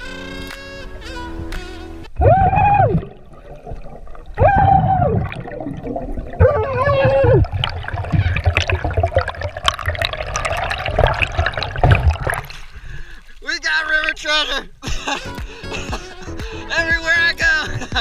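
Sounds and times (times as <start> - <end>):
water bubbling: 2.1 - 14.8
muffled underwater rumble: 2.2 - 13.1.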